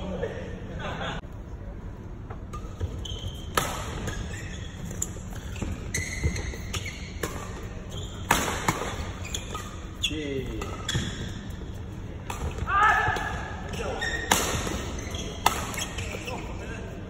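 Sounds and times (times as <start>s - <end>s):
steady low hum: 0.0s - 17.0s
shoes squeaking on court: 2.4s - 12.6s, 13.7s - 16.8s
rackets hitting shuttlecock: 3.5s - 4.3s, 6.2s - 9.7s, 12.2s - 16.2s.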